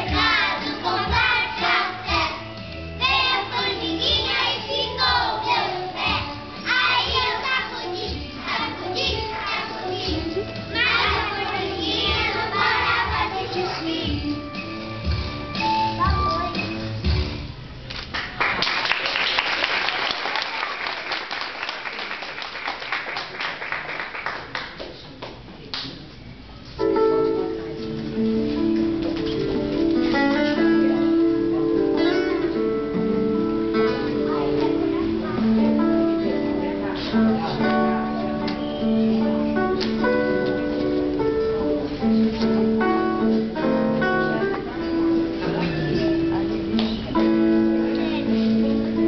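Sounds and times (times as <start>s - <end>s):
many hands clapping: 17.9s - 26.0s.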